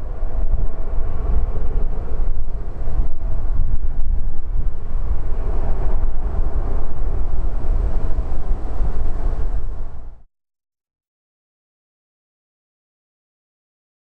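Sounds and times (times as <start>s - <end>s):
jet engines running: 0.0s - 10.2s
wind rumble on microphone: 0.0s - 10.3s.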